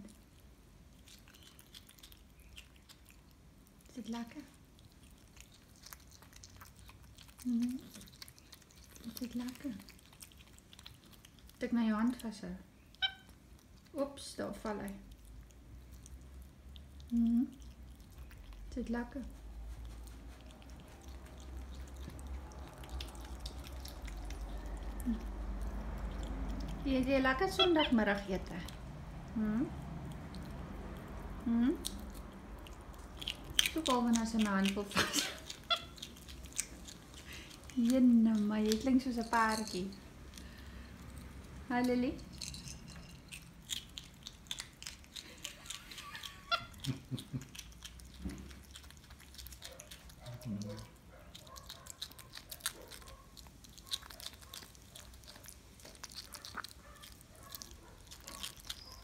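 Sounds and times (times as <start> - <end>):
monkey chewing with wet mouth clicks: 0.0 - 14.0, 14.8 - 26.9, 27.5 - 59.0
low steady hum: 0.0 - 59.0
monkey squeaky call: 12.9 - 13.4, 35.6 - 36.0, 45.8 - 46.9.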